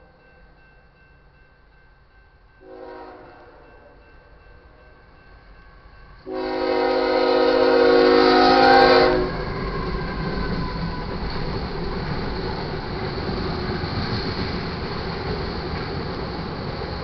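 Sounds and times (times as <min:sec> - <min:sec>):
train rumble and rail noise: 0:00.0 - 0:17.0
locomotive air horn: 0:02.6 - 0:03.9, 0:06.2 - 0:09.5.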